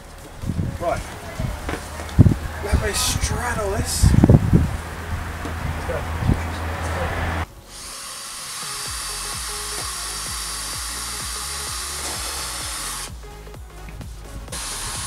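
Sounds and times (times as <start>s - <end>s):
background music with steady beat: 0.0s - 15.0s
cordless drill driving screws: 7.7s - 13.1s.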